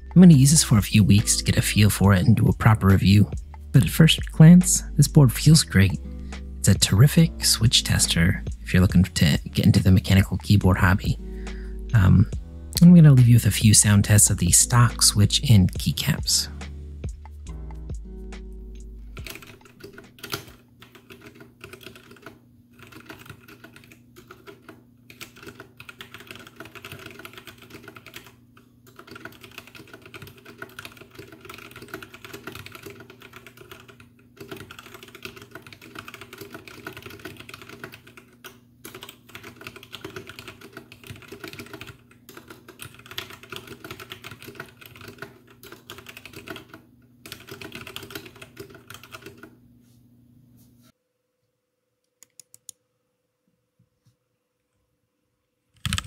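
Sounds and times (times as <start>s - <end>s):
fast typing on mechanical keyboard: 19.2s - 49.6s, 55.8s - 56.0s.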